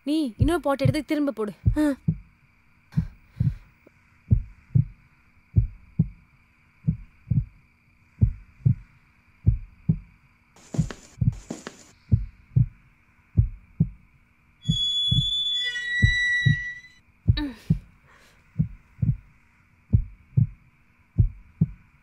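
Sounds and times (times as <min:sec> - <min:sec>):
heartbeat thumps: 0:00.4 - 0:06.2, 0:06.8 - 0:07.6, 0:08.2 - 0:12.8, 0:13.4 - 0:14.1, 0:14.7 - 0:15.3, 0:17.3 - 0:19.3, 0:19.9 - 0:20.6, 0:21.2 - 0:22.0
short hissing noises: 0:10.6 - 0:12.1.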